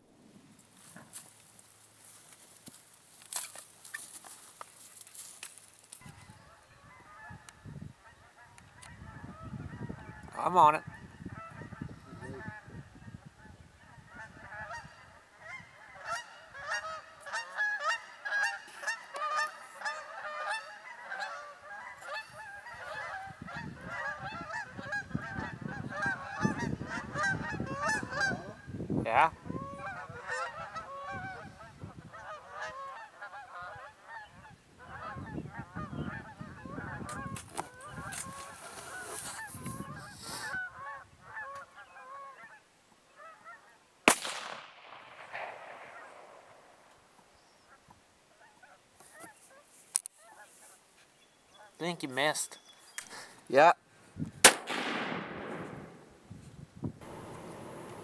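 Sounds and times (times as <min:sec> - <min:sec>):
geese honking: 0:06.0 - 0:28.6, 0:29.4 - 0:43.8, 0:45.5 - 0:49.6.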